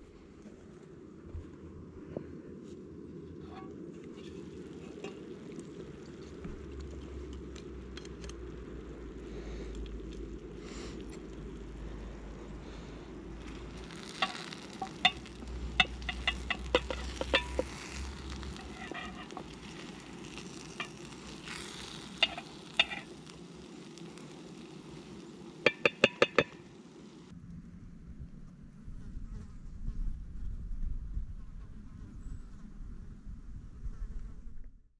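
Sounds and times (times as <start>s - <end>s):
food sizzling in a frying pan: 13.4s - 27.3s
wooden spoon tapping metal pan: 14.2s - 17.8s, 25.7s - 26.6s.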